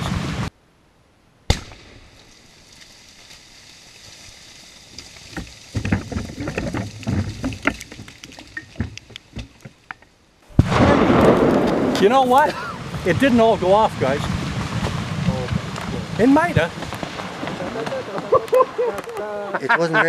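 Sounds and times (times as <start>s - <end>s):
faint hiss: 0.0s - 20.0s
mud clumps thudding and pattering: 2.6s - 9.9s, 10.7s - 19.3s.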